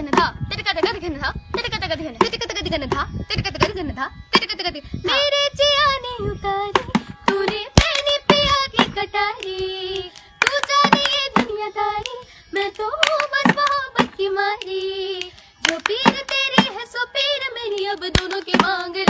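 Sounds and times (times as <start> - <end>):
girls singing: 6.7 - 19.0
hand claps: 8.8 - 12.2, 12.8 - 16.8, 17.7 - 19.0.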